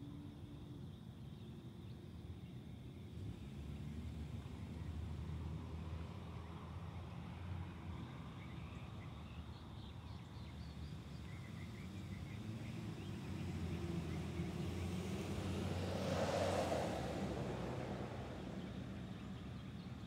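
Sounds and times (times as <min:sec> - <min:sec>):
distant traffic rumble: 0:03.2 - 0:20.0.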